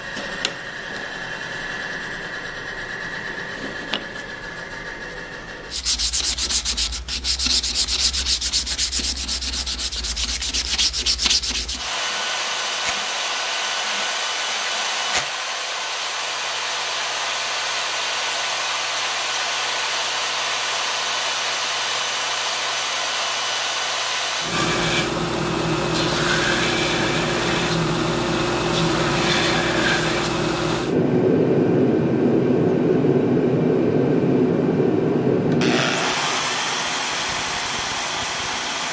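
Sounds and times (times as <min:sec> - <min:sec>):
bandsaw cutting brass: 0:05.7 - 0:14.7, 0:24.4 - 0:30.9
power tool shaping: 0:05.7 - 0:30.9.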